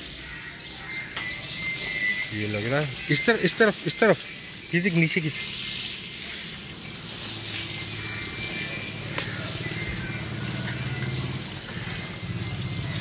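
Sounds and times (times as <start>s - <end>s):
hose water spraying and splashing: 1.0s - 13.0s.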